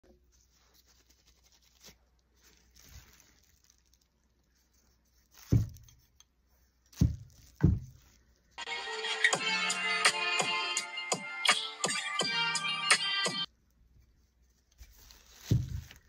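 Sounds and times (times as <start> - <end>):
faint rustling: 0.2 - 8.6
music: 8.6 - 13.5.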